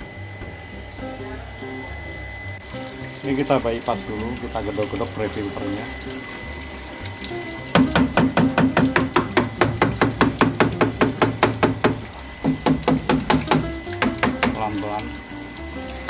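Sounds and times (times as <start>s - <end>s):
hammer tapping plastic pipe: 7.2s - 15.2s.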